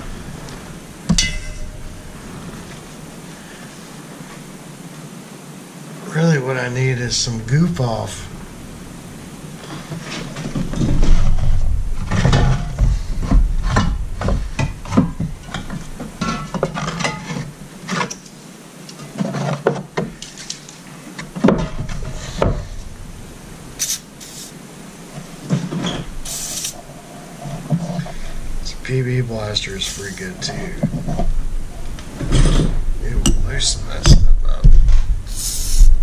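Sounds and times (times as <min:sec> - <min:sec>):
brief hiss: 0:23.8 - 0:24.6, 0:26.2 - 0:26.8, 0:35.3 - 0:36.0.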